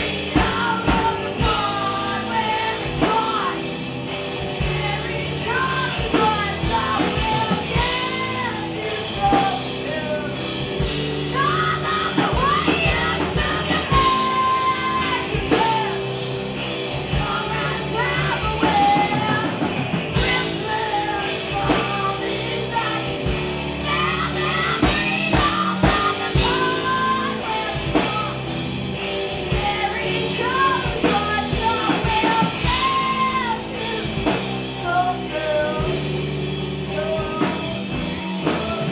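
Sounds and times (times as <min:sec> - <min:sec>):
drum kit: 0:00.0 - 0:38.9
electric bass: 0:00.0 - 0:38.9
electric guitar: 0:00.0 - 0:38.9
woman singing: 0:00.0 - 0:38.9.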